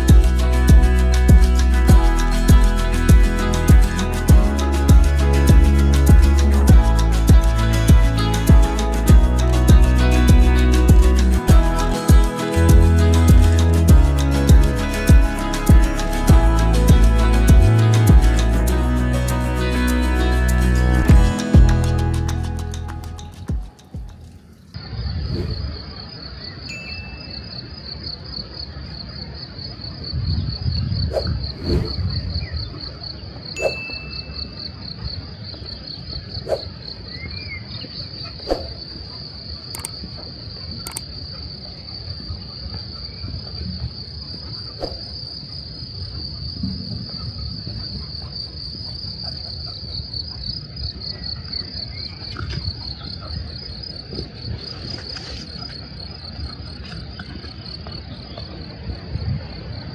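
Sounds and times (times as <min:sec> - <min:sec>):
insects chirring: 0:00.0 - 0:20.6, 0:21.3 - 0:59.9
sharp clicks: 0:39.8 - 0:40.0.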